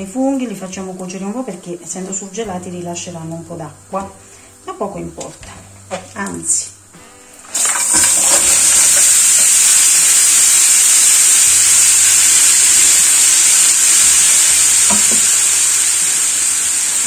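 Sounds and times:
mushrooms sizzling in hot oil: 7.4 - 17.0.

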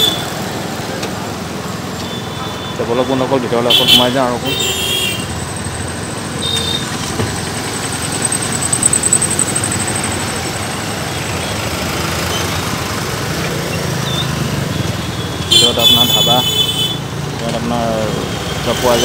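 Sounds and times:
car and motorbike engines passing: 0.0 - 19.0
high beep: 7.4 - 10.4.

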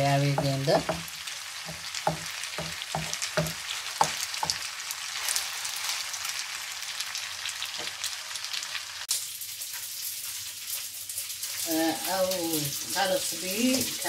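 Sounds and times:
food sizzling in a wok: 0.0 - 14.0
wooden spoon knocking pan: 0.2 - 4.6.

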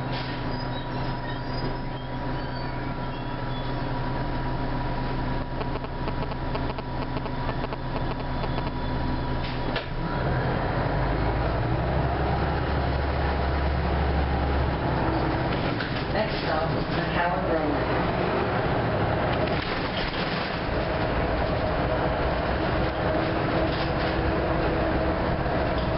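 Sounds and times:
bus engine idling: 0.0 - 25.9
steady high whine: 3.8 - 9.4.

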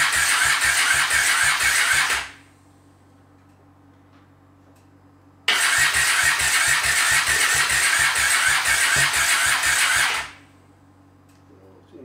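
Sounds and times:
electric starter cranking engine: 0.0 - 2.4, 5.5 - 10.4
faint steady hum: 10.2 - 12.0.

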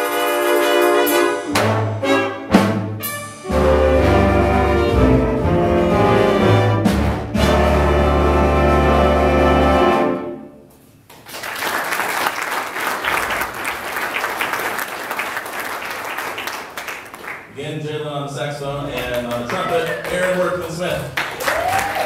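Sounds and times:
school band holding a chord: 0.0 - 10.6
audience applauding: 11.1 - 17.5, 18.9 - 22.0.

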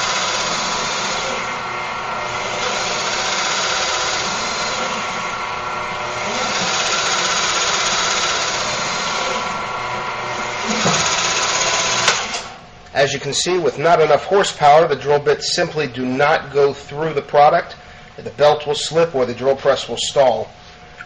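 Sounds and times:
drill press under heavy load: 0.0 - 12.7.

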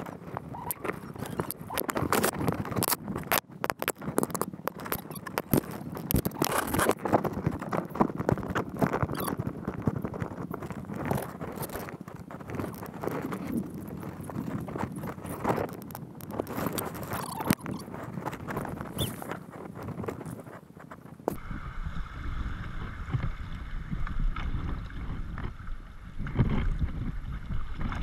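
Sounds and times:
squeaks and snaps: 0.0 - 9.5, 10.6 - 21.4
brush scraping against kayak: 10.8 - 21.2.

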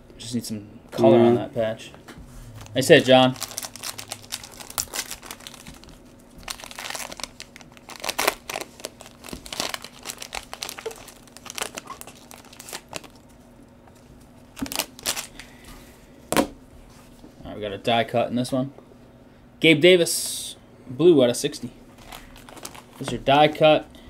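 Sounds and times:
foil wrapper crinkling and tearing: 2.7 - 13.4, 14.5 - 15.5, 22.0 - 23.3.

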